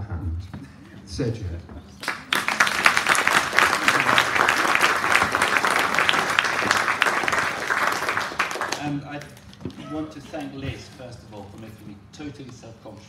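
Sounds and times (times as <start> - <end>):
audience applauding: 2.0 - 9.2.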